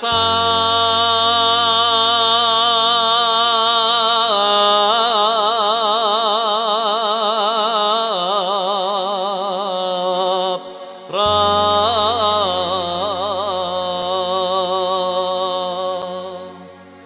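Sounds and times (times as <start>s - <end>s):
low steady drone: 0.0s - 5.6s, 11.2s - 17.0s
person chanting a long note: 0.0s - 17.0s.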